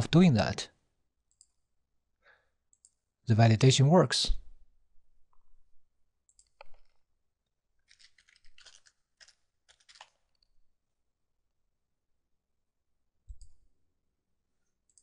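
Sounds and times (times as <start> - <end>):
keyboard typing: 6.3 - 7.0, 7.8 - 10.2.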